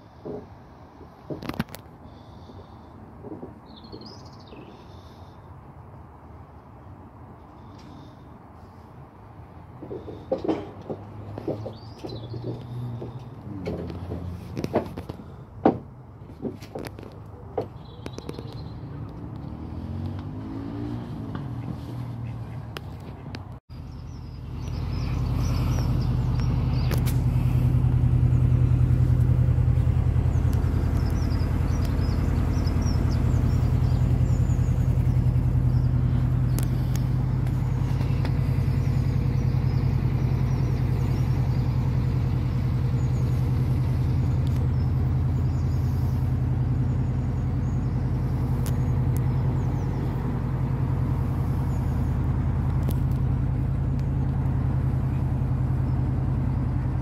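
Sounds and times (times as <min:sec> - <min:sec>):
boat engine humming: 0:06.3 - 0:57.0.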